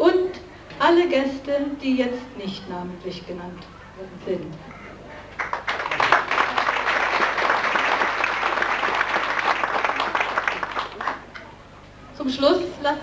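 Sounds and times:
audience applause: 5.3 - 11.3.

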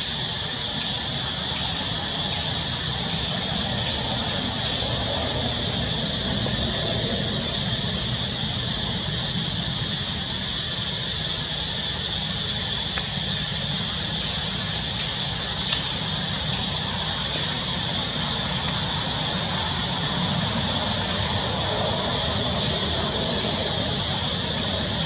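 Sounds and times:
constant high hiss: 0.0 - 25.0
faint clicks: 15.0 - 16.7.

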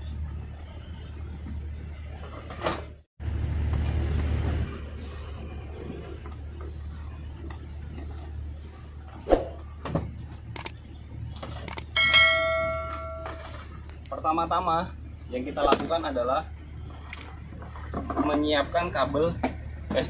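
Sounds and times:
low steady hum: 0.0 - 20.0
bright bell ding: 12.0 - 13.6.

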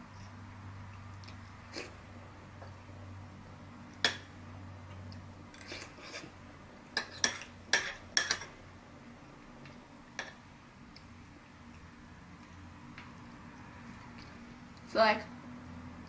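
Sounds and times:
metal spoon clinking on ceramic bowl: 7.0 - 8.5.

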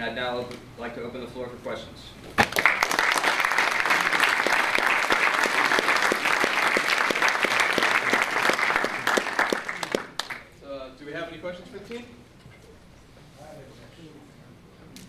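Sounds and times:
audience applauding: 2.4 - 10.5.

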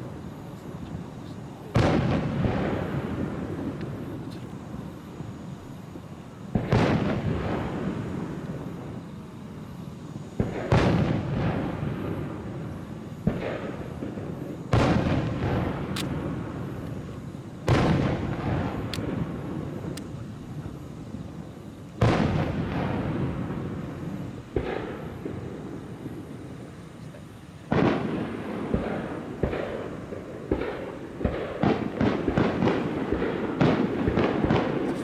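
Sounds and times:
firework shells booming: 1.6 - 4.4, 6.5 - 9.0, 10.4 - 20.8, 22.0 - 26.5, 27.6 - 35.0.

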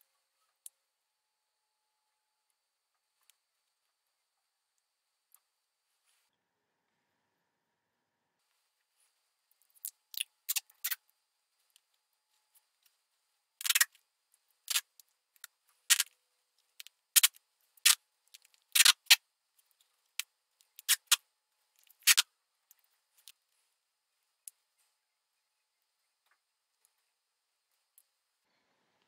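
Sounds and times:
duct tape ripping: 13.6 - 13.9, 18.7 - 19.2, 22.0 - 22.2.

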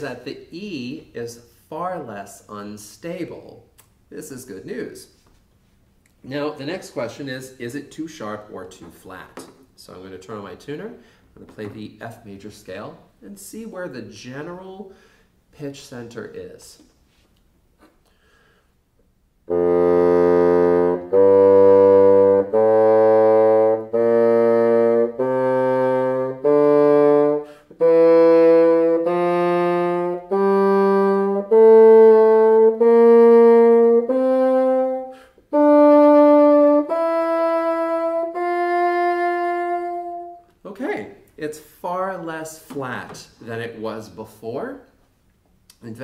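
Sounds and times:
bassoon playing a slow scale: 19.5 - 40.5.

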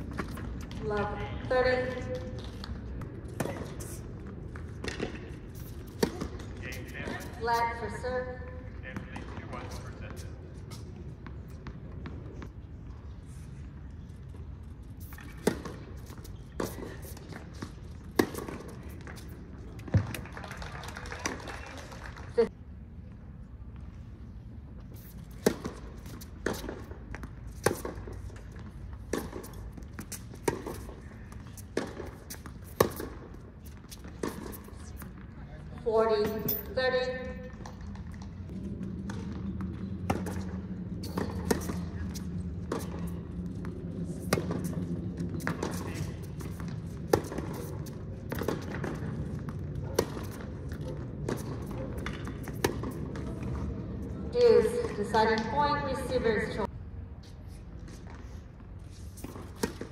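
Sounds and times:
racquets hitting tennis ball: 4.5 - 7.6, 15.0 - 20.2, 25.0 - 35.3, 39.0 - 53.7, 59.2 - 59.9.

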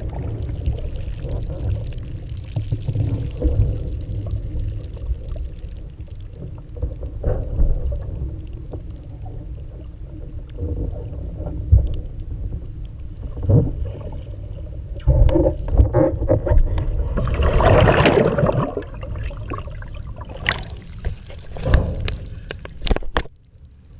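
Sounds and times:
water splashing against a board: 15.0 - 23.3.

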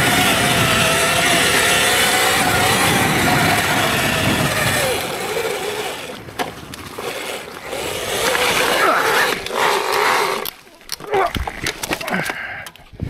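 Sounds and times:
electric motorbike motor whining: 0.0 - 11.1.

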